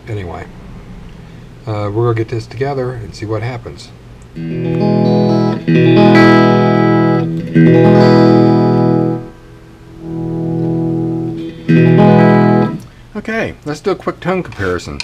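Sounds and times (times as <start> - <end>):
electric guitar chords: 4.3 - 13.1.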